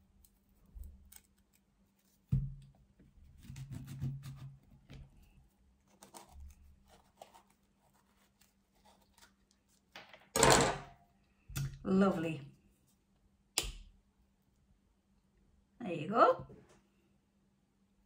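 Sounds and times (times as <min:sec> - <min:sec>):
knife scraping avocado: 0:05.9 - 0:09.4.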